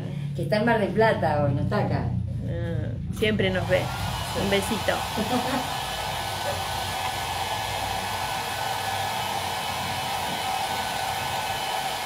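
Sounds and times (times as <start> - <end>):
hair dryer blowing: 3.5 - 12.0.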